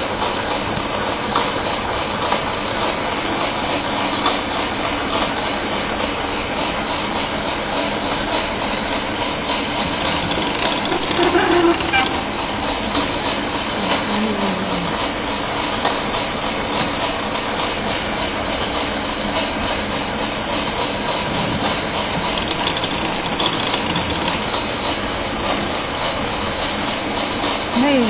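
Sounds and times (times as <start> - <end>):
sewing machine running: 6.8 - 15.6, 21.1 - 28.0.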